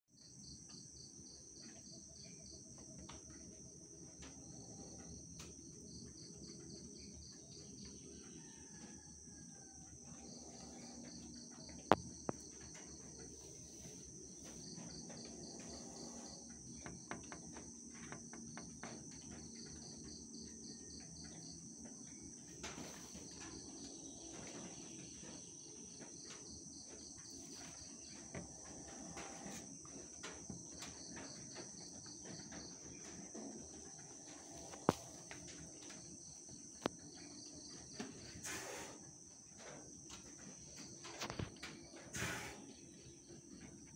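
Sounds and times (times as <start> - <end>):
insects trilling: 0.2 - 43.9.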